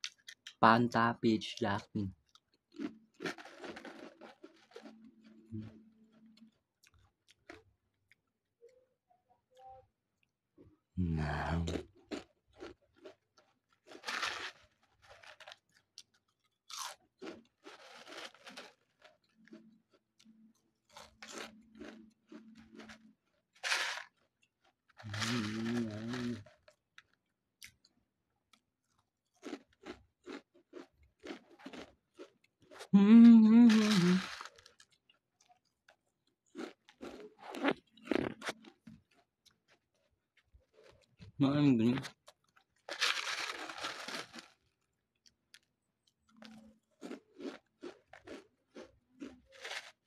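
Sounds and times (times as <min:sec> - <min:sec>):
chewing potato chips: 0:00.0 - 0:00.6, 0:02.1 - 0:08.3, 0:11.1 - 0:50.0
chip crumbs rattling in plastic tube: 0:23.6 - 0:24.1
person humming mmm: 0:25.1 - 0:26.4, 0:33.0 - 0:34.3.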